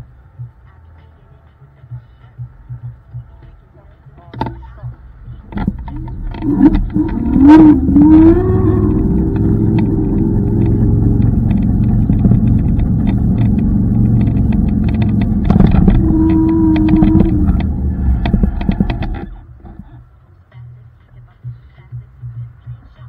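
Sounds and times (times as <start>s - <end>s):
road and wind rumble: 0.0s - 23.0s
knocks from bumps: 5.6s - 19.8s
electric motor whine: 6.0s - 19.4s.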